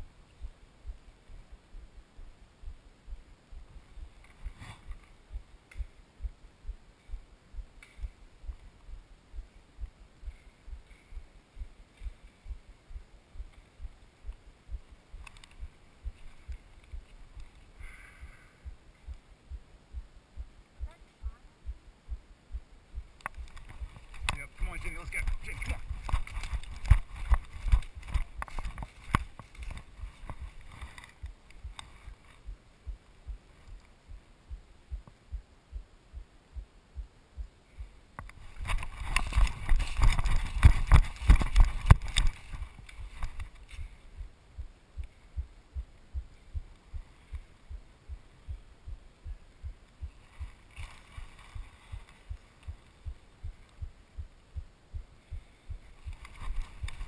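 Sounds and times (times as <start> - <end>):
running footsteps on dry leaves: 25.0 - 31.0, 38.6 - 43.4.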